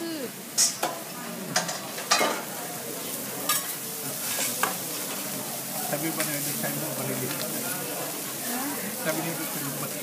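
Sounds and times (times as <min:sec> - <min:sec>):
food sizzling on a griddle: 0:00.0 - 0:10.0
metal spatula scraping hot plate: 0:03.5 - 0:05.2.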